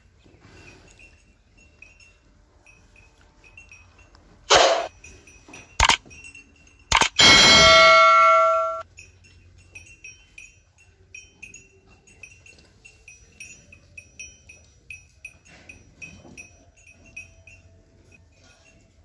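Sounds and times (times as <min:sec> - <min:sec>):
small metal bell tinkling: 0:00.0 - 0:19.0
loud sustained tone: 0:07.2 - 0:08.8.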